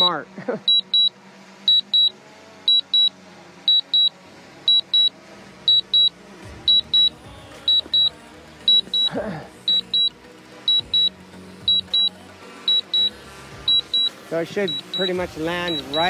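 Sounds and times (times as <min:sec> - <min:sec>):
high double beep alert: 0:00.7 - 0:01.1, 0:01.7 - 0:02.1, 0:02.7 - 0:03.1, 0:03.7 - 0:04.1, 0:04.7 - 0:05.1, 0:05.7 - 0:06.1, 0:06.7 - 0:08.1, 0:08.7 - 0:09.1, 0:09.7 - 0:10.1, 0:10.7 - 0:11.1, 0:11.7 - 0:12.1, 0:12.7 - 0:13.1, 0:13.7 - 0:14.1, 0:14.7 - 0:16.0.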